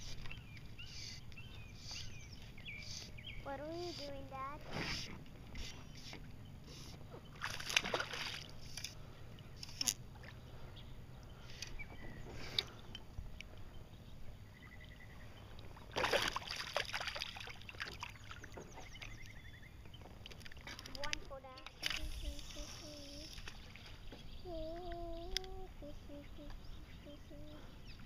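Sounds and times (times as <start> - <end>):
water splashing beside kayak: 3.0 - 9.0, 14.8 - 25.4.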